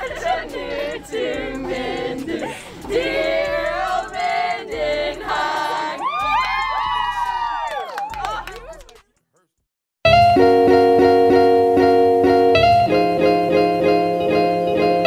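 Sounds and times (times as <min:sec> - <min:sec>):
group of voices singing: 0:00.0 - 0:06.5.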